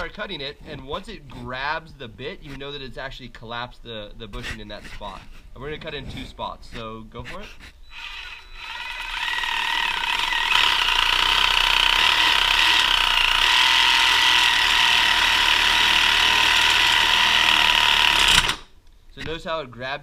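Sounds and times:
reciprocating saw cutting metal: 7.3s - 18.7s.

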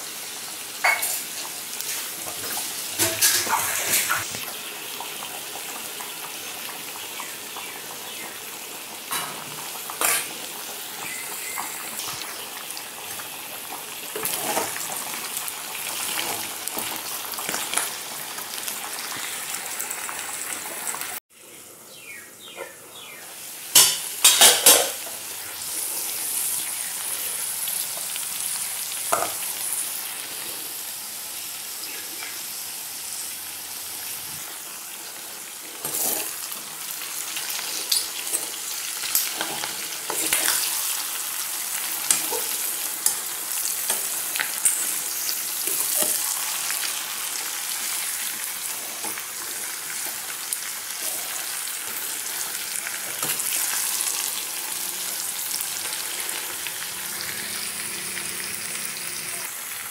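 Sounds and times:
food sizzling in oil: 0.0s - 21.2s, 22.4s - 59.9s
metal spoon scraping pan: 35.8s - 36.3s.

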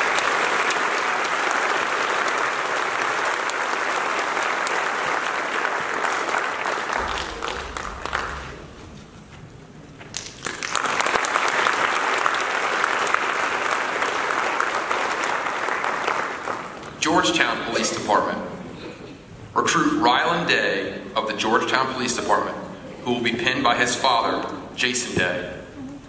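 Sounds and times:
audience applauding: 0.0s - 9.1s, 10.0s - 17.0s.

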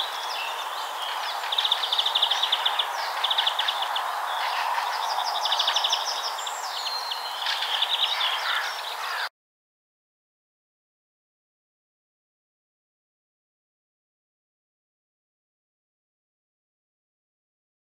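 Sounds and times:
steady background hiss: 0.0s - 9.2s
songbirds trilling: 0.0s - 9.3s.

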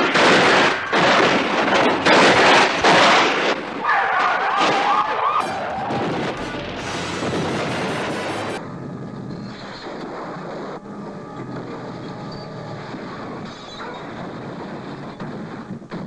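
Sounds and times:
car crashing and scraping: 1.0s - 8.6s
steady rushing noise: 5.4s - 16.0s.

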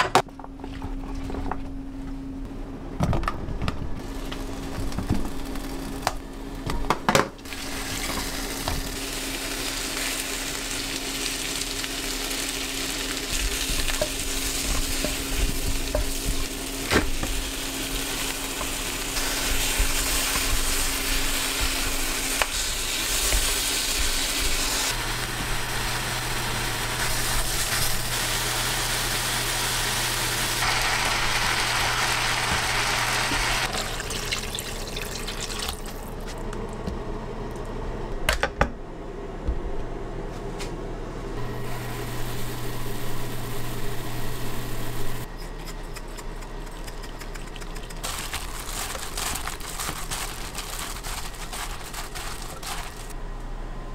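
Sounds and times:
food sizzling in a frying pan: 7.5s - 33.7s, 41.4s - 45.3s.

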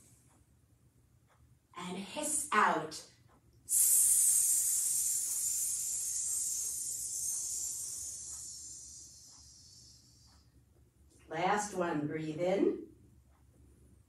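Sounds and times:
woman hissing exhale: 3.7s - 10.3s.

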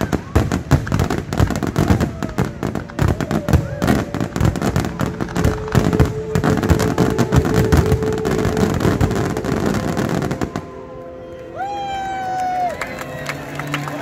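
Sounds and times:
fireworks bursting and crackling: 0.0s - 12.6s.

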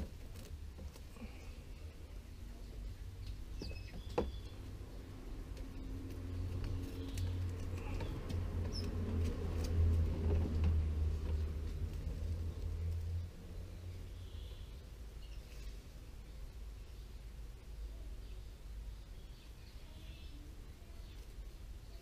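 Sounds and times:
cling film crinkling and squeaking: 0.0s - 1.2s, 5.6s - 13.0s
bird chirps: 3.2s - 4.6s.

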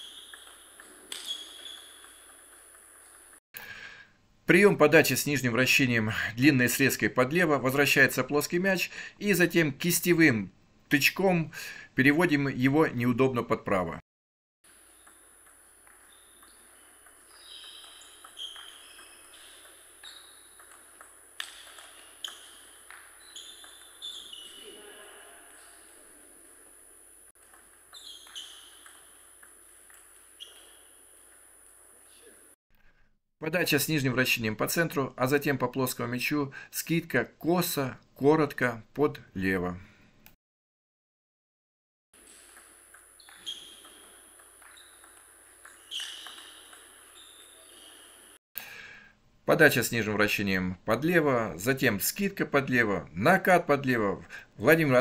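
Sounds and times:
table tennis ball pings: 0.0s - 3.4s, 14.7s - 26.7s, 27.4s - 32.2s, 42.2s - 48.4s.

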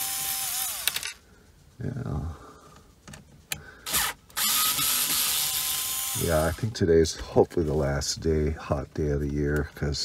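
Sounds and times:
cordless drill motor whining: 0.0s - 1.2s, 3.8s - 6.6s.

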